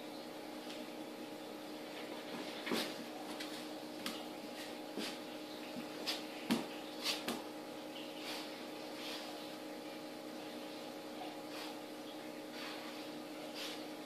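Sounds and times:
animals scuffling on tile floor: 0:01.7 - 0:14.0.

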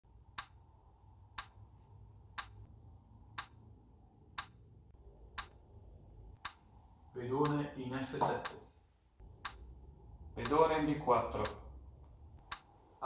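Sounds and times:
clock ticking: 0:00.3 - 0:00.7, 0:01.3 - 0:01.6, 0:02.3 - 0:02.7, 0:03.3 - 0:03.6, 0:04.4 - 0:04.6, 0:05.3 - 0:05.6, 0:06.4 - 0:06.6, 0:09.4 - 0:09.7, 0:10.4 - 0:10.7, 0:11.4 - 0:11.6.

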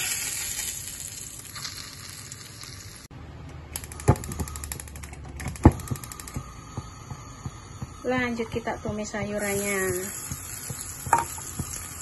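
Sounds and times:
oil sizzling in frying pan: 0:00.0 - 0:03.1, 0:06.7 - 0:12.0.

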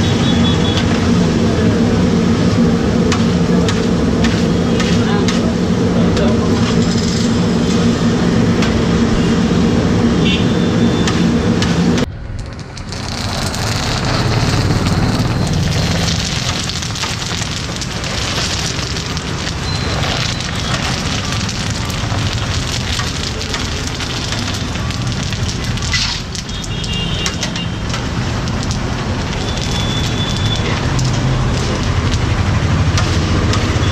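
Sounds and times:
chips sizzling in oil: 0:12.4 - 0:33.9.

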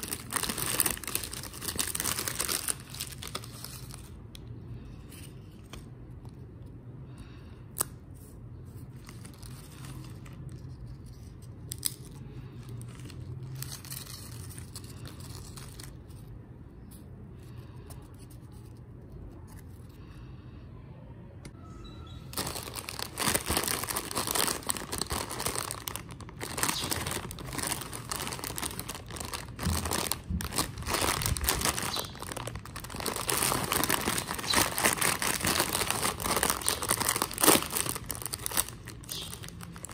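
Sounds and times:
chip packet crinkling: 0:00.0 - 0:04.2, 0:08.9 - 0:16.2, 0:22.3 - 0:39.9.

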